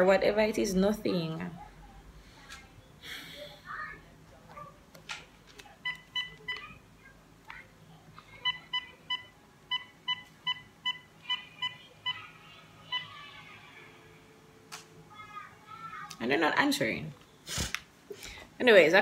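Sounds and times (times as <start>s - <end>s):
phone keypad beeps: 5.8s - 6.8s, 8.4s - 12.2s.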